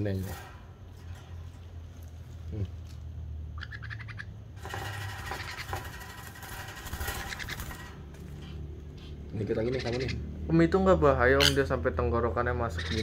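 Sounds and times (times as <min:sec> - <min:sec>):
baby parrot begging calls: 0:03.6 - 0:04.3, 0:09.5 - 0:10.3, 0:12.7 - 0:13.0.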